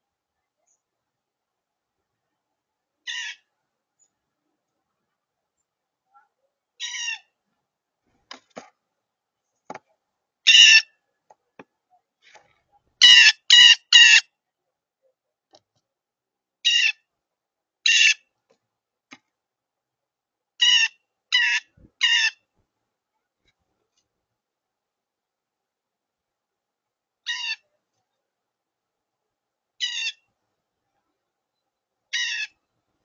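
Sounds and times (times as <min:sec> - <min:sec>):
blue jay harsh calls: 0:03.0 - 0:03.5, 0:06.8 - 0:07.3, 0:10.5 - 0:10.9, 0:13.0 - 0:14.2, 0:16.6 - 0:17.0, 0:17.8 - 0:18.2, 0:20.6 - 0:22.4, 0:27.2 - 0:27.6, 0:29.8 - 0:30.3, 0:32.1 - 0:32.6.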